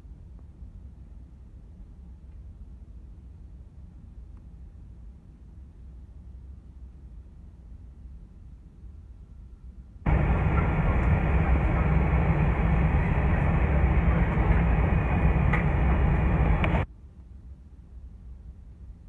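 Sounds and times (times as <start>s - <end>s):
faint clicks: 10.1s - 16.8s
airliner cabin rumble: 10.1s - 16.9s.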